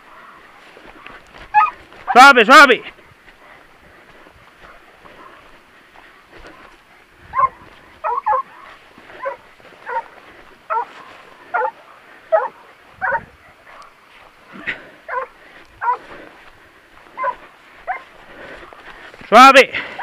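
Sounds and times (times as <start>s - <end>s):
hound barking: 1.0s - 1.8s, 7.3s - 16.2s, 17.0s - 18.8s.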